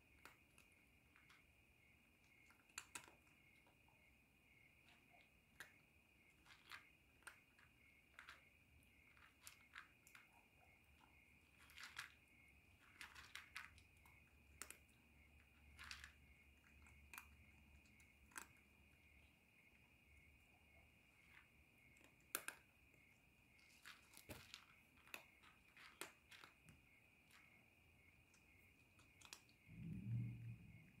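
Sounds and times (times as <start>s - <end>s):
cat crunching dry kibble: 2.4s - 3.8s, 4.8s - 19.0s, 21.2s - 27.5s, 28.8s - 30.0s.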